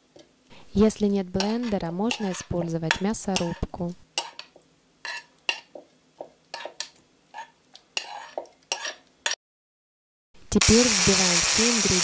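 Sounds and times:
utensil scraping a frying pan: 0:01.4 - 0:05.7, 0:06.5 - 0:09.0.

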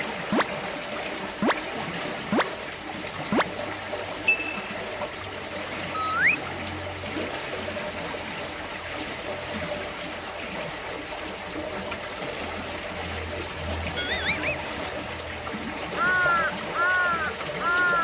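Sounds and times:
water trickling: 0:00.0 - 0:18.0
short ringing tone: 0:04.3 - 0:05.0, 0:14.0 - 0:14.7
rising whistled call: 0:05.9 - 0:06.4, 0:14.0 - 0:14.7.

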